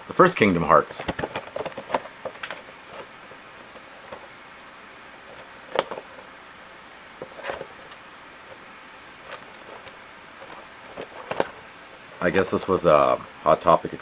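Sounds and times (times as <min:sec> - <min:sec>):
steady low hiss: 0:00.0 - 0:14.0
cardboard rustle: 0:01.0 - 0:04.4, 0:07.2 - 0:12.4.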